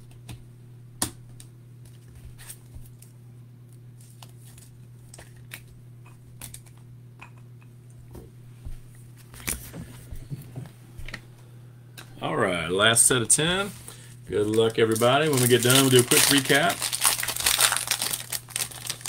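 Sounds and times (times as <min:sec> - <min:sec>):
steady low hum: 0:00.0 - 0:19.0
trading cards rustling: 0:13.1 - 0:19.0.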